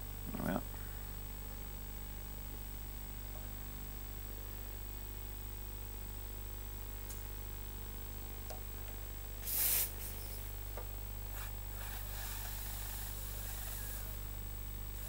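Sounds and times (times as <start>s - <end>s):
steam gun hissing: 9.4s - 10.5s, 11.3s - 14.3s.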